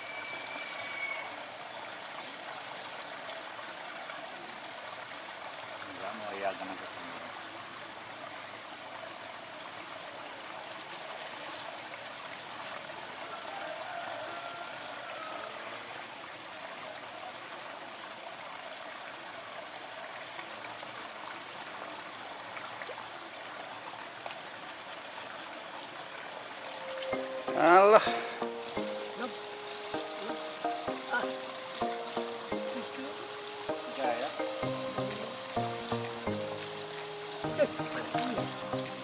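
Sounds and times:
running water rushing: 0.0 - 39.0
thin high steady tone: 26.6 - 39.0.

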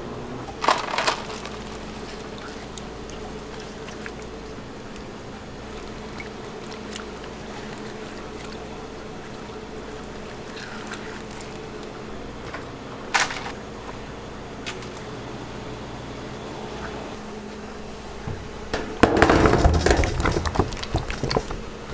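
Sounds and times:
steady kitchen hum: 0.0 - 21.9
wet splashes and squelches: 0.6 - 12.5.

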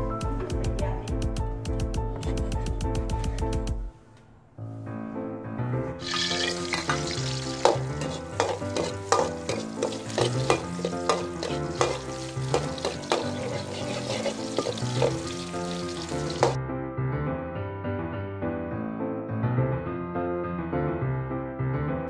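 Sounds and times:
background music: 0.0 - 22.0
garlic sizzling in hot oil: 6.0 - 16.6
metal ladle scraping wok: 6.0 - 16.6.

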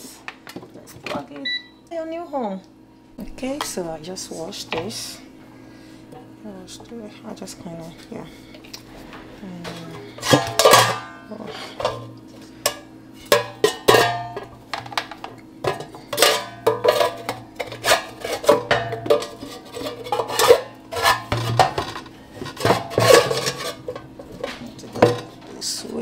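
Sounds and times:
metal basket clattering: 9.7 - 12.0.

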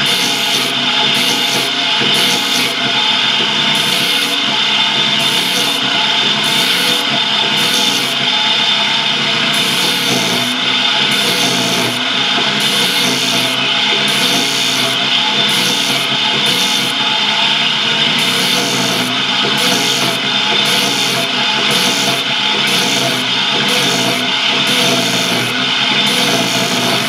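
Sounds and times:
machine whine: 0.0 - 27.0
blade rasping on cane: 12.6 - 17.1, 18.2 - 27.0.

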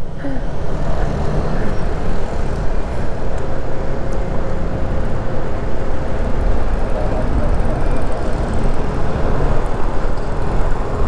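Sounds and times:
scooter engine drone: 0.0 - 11.0.

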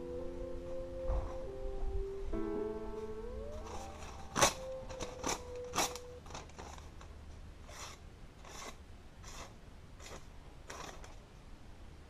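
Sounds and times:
knife blade being wiped: 7.7 - 11.0.

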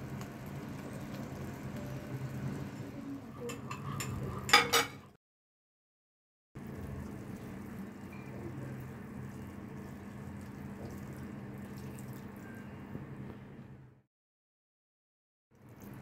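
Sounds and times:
milk trickling into a pan: 6.6 - 12.7.

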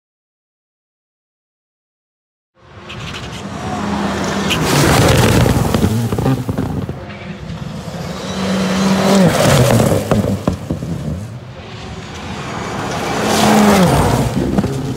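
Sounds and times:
gravel and tyres hissing: 2.6 - 14.9
rally car engine revving: 2.8 - 14.9.

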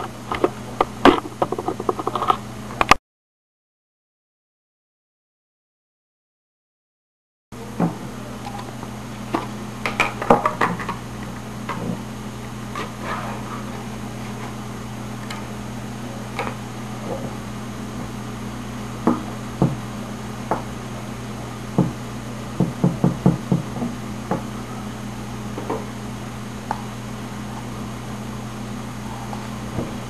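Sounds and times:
low electrical hum: 0.0 - 3.0, 7.6 - 30.0.

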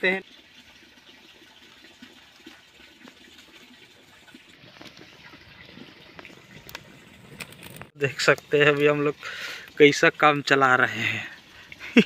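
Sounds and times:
small fire crackling: 6.0 - 10.4.

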